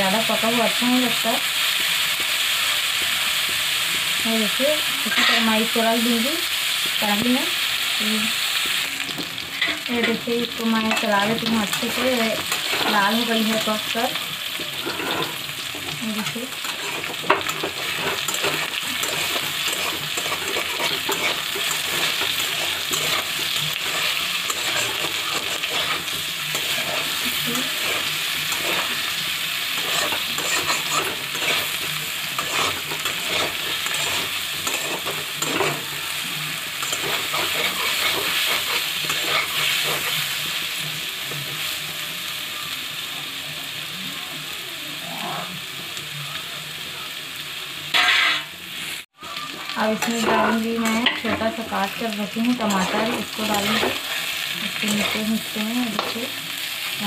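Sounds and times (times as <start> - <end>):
food sizzling in a pan: 0.0 - 57.0
metal spatula scraping a pan: 5.0 - 5.7, 9.5 - 14.0, 14.6 - 36.0, 36.8 - 40.5, 47.9 - 48.5, 49.8 - 56.2.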